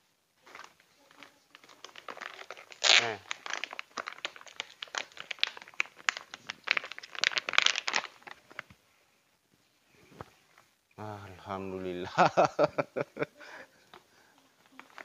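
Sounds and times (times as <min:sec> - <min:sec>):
plastic bag crinkling: 0:00.4 - 0:08.8, 0:14.6 - 0:15.0.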